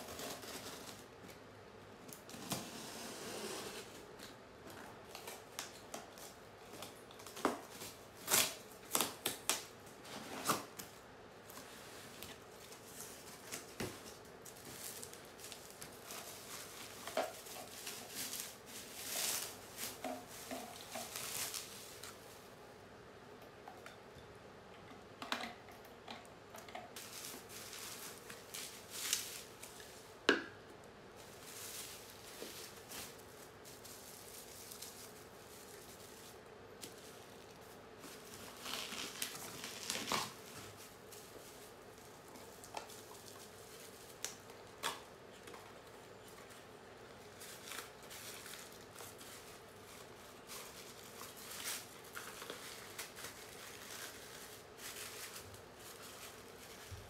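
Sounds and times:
cardboard and bubble wrap crinkling: 0:00.0 - 0:01.4, 0:02.2 - 0:22.6, 0:27.0 - 0:30.2, 0:31.1 - 0:57.0
packing tape peeling: 0:06.8 - 0:09.7, 0:38.2 - 0:40.8.

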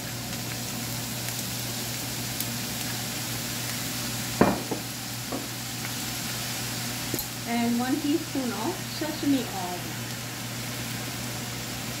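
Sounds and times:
rice sizzling in a frying pan: 0:00.0 - 0:12.0
sharp knock on pan: 0:04.4 - 0:05.5.

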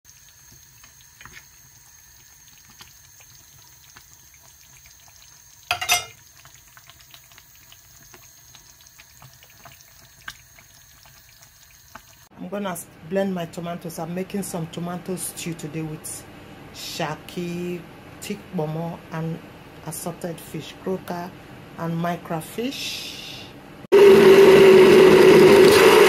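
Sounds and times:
stew bubbling in a pot: 0:00.0 - 0:12.6.

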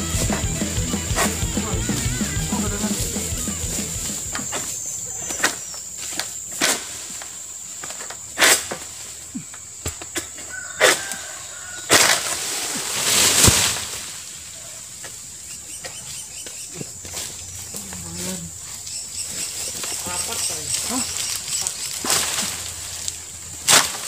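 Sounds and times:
high-pitched whine: 0:00.0 - 0:05.1
rustling scrape of fronds: 0:00.0 - 0:09.3, 0:10.5 - 0:15.4, 0:16.9 - 0:24.0.

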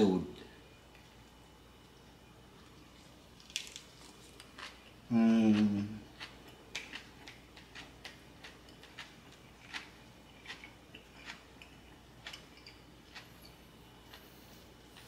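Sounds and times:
chewing with wet smacks: 0:02.6 - 0:14.3.

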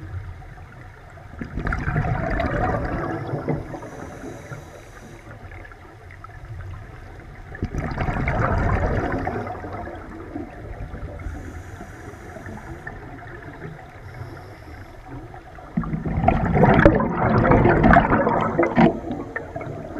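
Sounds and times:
bubbles rushing and gurgling: 0:01.3 - 0:04.6, 0:05.4 - 0:14.0, 0:15.1 - 0:19.9
diver breathing through regulator: 0:03.6 - 0:05.4, 0:11.2 - 0:13.2, 0:14.0 - 0:15.3.

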